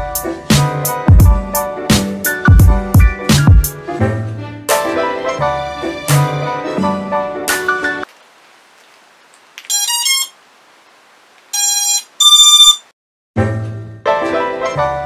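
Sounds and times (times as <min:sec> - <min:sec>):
electronic beeps: 0:09.7 - 0:10.3, 0:11.6 - 0:12.9.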